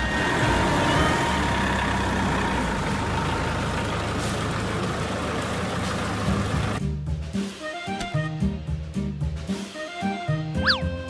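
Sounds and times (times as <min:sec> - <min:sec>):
truck engine rumbling: 0:00.0 - 0:06.8.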